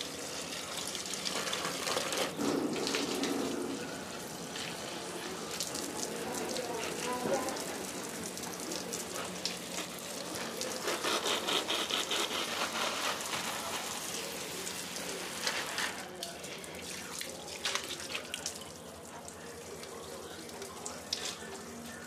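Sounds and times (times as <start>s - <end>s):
water spray on plants: 0.0s - 18.6s.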